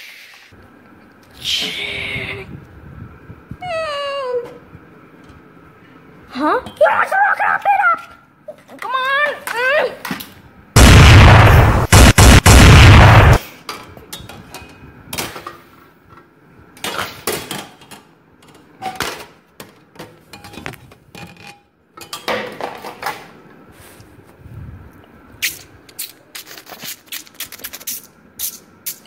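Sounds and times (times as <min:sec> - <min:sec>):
harsh rushing blast of noise: 0:10.8 - 0:13.4.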